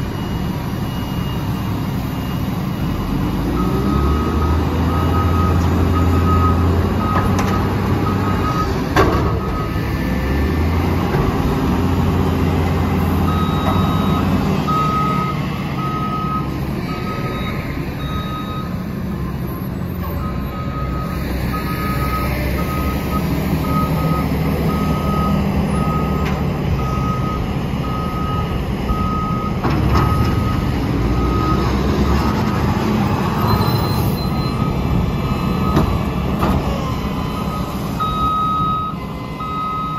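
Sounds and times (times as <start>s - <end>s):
diesel engines running: 0.0s - 39.9s
backup alarm beeping: 13.2s - 18.8s, 26.8s - 30.6s, 36.8s - 39.9s.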